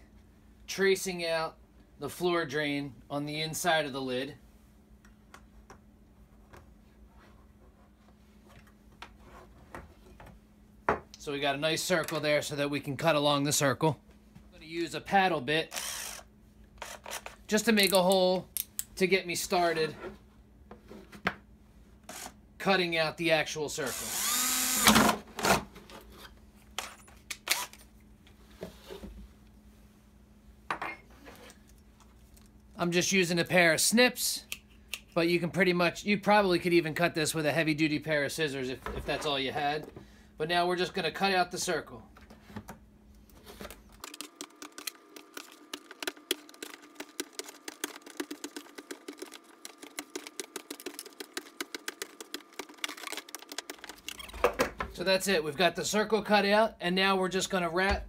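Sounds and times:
cordless drill whining: 15.7 - 17.2, 22.1 - 22.4, 23.9 - 25.2.

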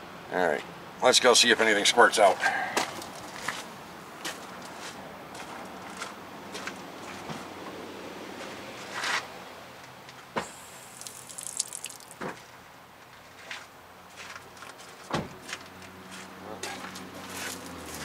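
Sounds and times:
brake fluid squirting hiss: 10.4 - 12.2.

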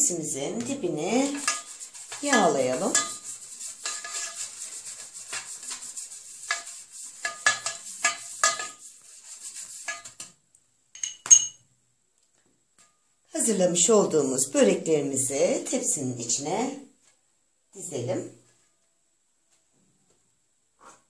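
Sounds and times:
pastry brush tapping a pan: 0.6 - 10.4
ringing clinks: 11.0 - 11.6.

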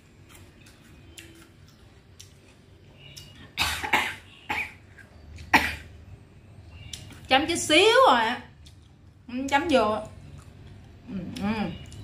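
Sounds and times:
woman coughing: 3.6 - 4.8, 5.5 - 5.9.

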